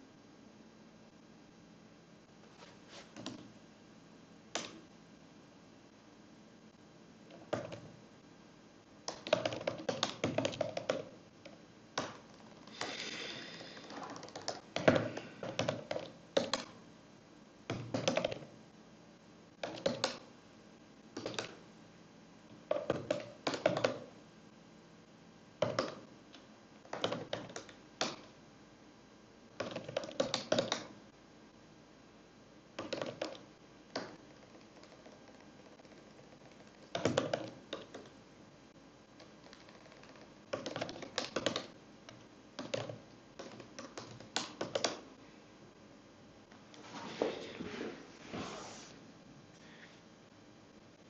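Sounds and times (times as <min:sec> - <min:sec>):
computer keyboard typing: 0:09.1 - 0:16.8, 0:17.7 - 0:18.5, 0:19.6 - 0:20.2, 0:21.2 - 0:21.6, 0:22.7 - 0:24.1, 0:26.8 - 0:28.3, 0:29.6 - 0:30.9, 0:32.8 - 0:38.2, 0:39.2 - 0:45.0.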